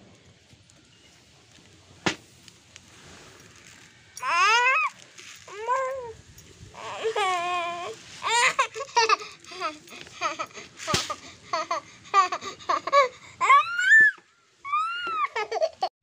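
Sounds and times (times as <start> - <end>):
child babbling and laughing: 4.2 - 6.2, 6.8 - 15.9
child squealing: 4.2 - 6.2, 12.8 - 15.7.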